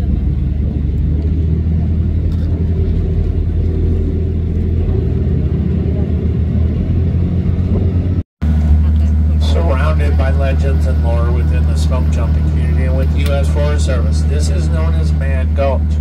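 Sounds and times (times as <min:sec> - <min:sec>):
boat motors droning: 0:00.0 - 0:16.0.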